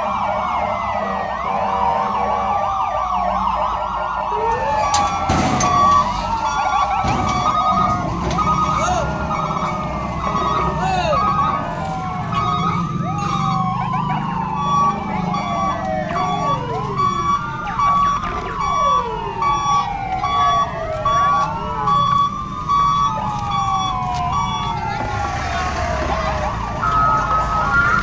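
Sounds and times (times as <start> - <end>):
electronic siren wailing: 0.0 - 28.0
pulsing beeping tone: 4.9 - 13.8, 14.6 - 24.7.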